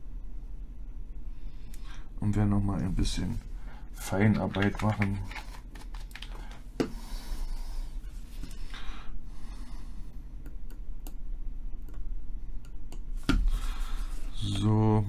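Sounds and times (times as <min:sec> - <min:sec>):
steady low hum: 0:00.0 - 0:15.0
click: 0:10.4 - 0:11.2, 0:11.8 - 0:12.0.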